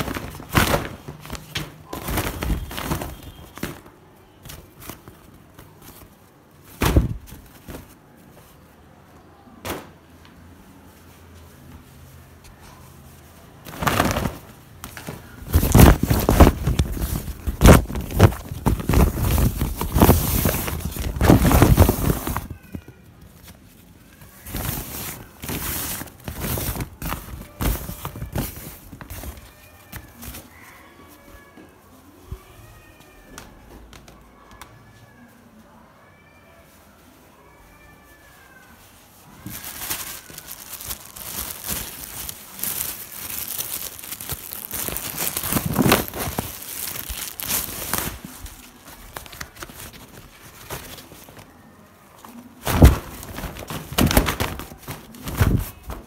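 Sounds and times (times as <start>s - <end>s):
fabric bag rustling: 0.0s - 8.5s, 12.9s - 30.6s, 39.1s - 56.0s.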